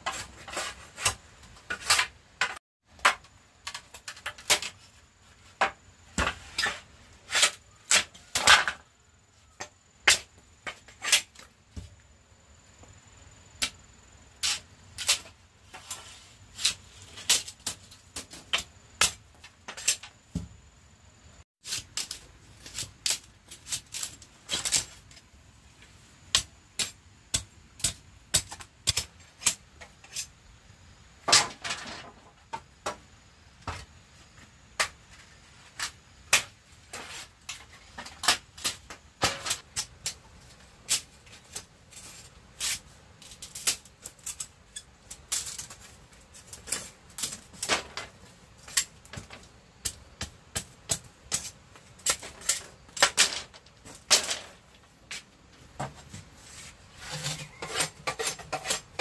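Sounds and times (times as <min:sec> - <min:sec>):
short scraping sounds: 0:56.4 - 0:59.0.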